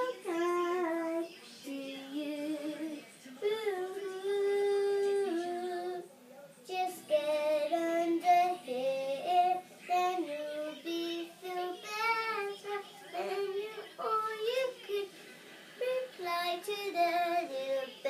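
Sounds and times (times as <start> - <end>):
girl singing unaccompanied: 0.0 - 6.0, 6.6 - 18.0.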